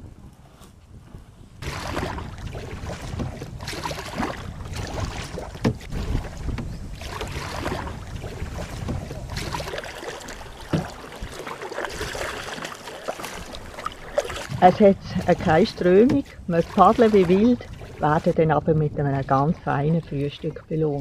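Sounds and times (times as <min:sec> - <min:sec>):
paddles swishing through water: 0:00.0 - 0:21.0
wind buffeting microphone: 0:00.0 - 0:21.0
sharp knocks: 0:05.5 - 0:06.8, 0:10.7 - 0:11.0.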